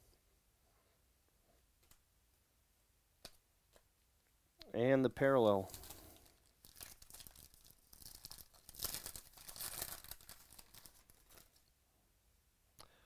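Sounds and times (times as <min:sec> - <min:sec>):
foil wrapper tearing and crinkling: 0:05.7 - 0:11.6.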